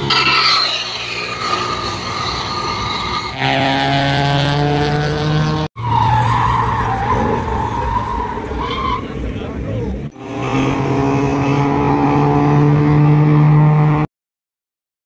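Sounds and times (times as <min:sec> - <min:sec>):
car engine revving high: 0:01.0 - 0:05.7, 0:10.1 - 0:14.1.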